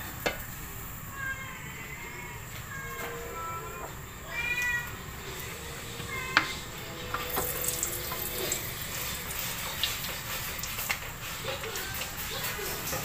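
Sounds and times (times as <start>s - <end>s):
short high warbling tone: 5.0s - 9.3s.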